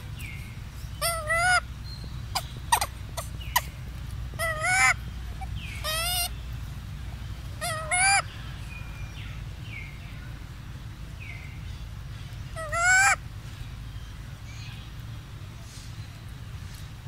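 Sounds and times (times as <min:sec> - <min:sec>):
steady low rumble: 0:00.0 - 0:17.0
young macaque crying: 0:01.0 - 0:01.6, 0:02.3 - 0:06.3, 0:07.6 - 0:08.2, 0:12.6 - 0:13.2.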